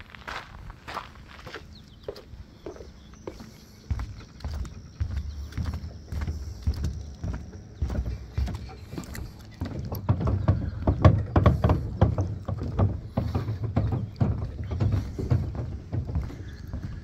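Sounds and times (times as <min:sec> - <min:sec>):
footsteps on wooden decking: 0:00.0 - 0:17.0.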